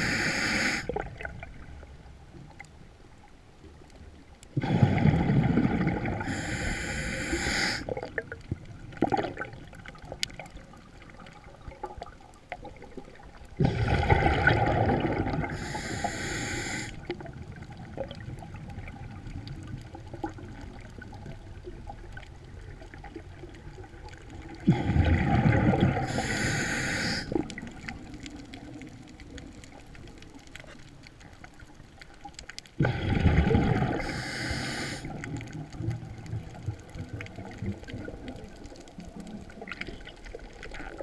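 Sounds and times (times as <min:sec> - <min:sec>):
diver breathing through regulator: 0:00.0 - 0:00.9, 0:06.2 - 0:07.9, 0:15.4 - 0:17.0, 0:26.0 - 0:27.4, 0:33.9 - 0:35.1
small underwater clicks: 0:00.0 - 0:04.7, 0:05.6 - 0:41.0.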